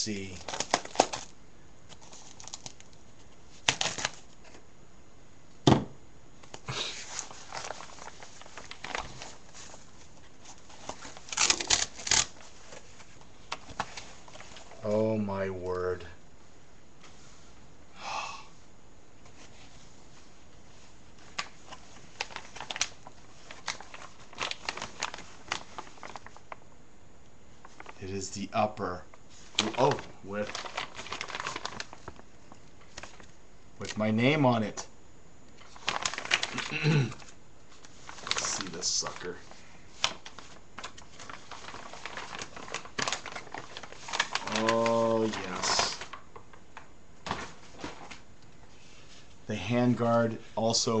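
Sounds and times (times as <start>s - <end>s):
packaging rustled and torn: 0.2s - 4.6s, 6.4s - 14.8s, 21.2s - 26.6s, 29.5s - 33.3s, 35.6s - 48.2s.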